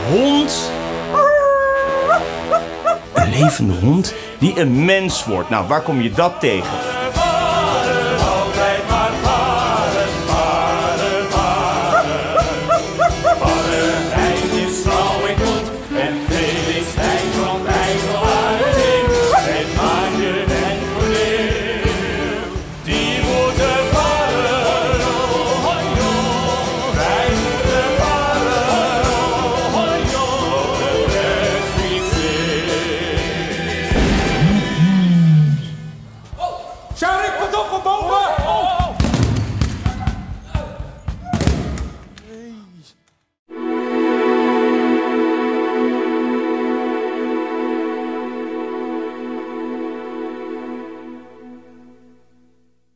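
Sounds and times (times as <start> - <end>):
men singing: 3.1 - 35.3
drum kit beat: 6.7 - 41.3.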